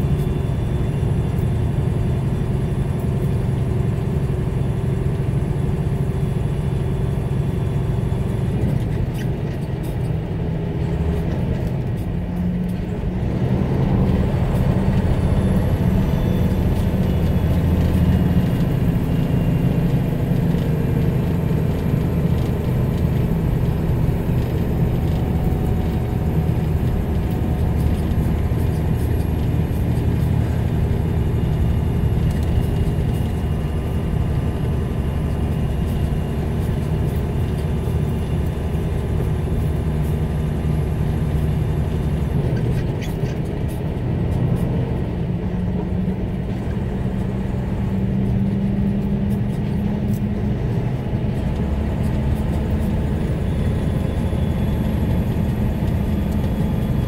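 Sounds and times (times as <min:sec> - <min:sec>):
vehicle engine and road noise: 0:00.0 - 0:57.0.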